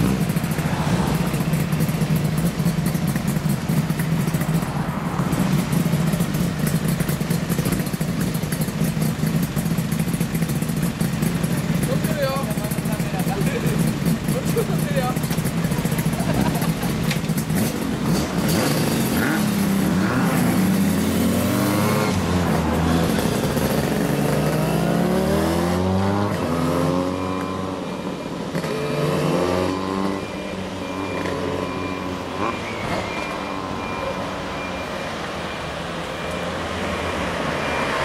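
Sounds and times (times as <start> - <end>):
motorcycles accelerating: 0.0 - 38.0
street traffic: 0.0 - 38.0
short high beeps: 26.9 - 35.8.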